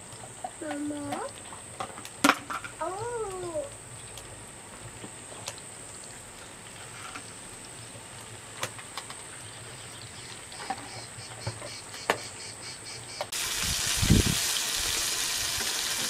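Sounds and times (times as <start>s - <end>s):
patties sizzling in a frying pan: 13.3s - 16.0s.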